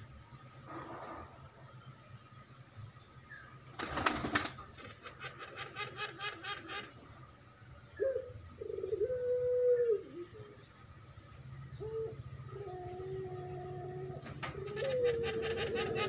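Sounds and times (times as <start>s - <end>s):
dove cooing: 4.3s - 7.0s, 8.0s - 10.6s, 11.7s - 16.0s
dove gurgling notes: 11.7s - 16.0s.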